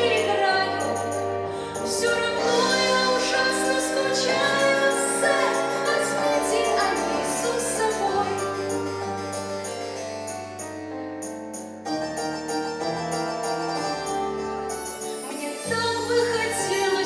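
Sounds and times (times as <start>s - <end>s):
girl singing into a microphone: 0.0s - 1.0s, 1.6s - 8.6s, 15.6s - 17.0s
instrumental accompaniment: 0.0s - 17.0s.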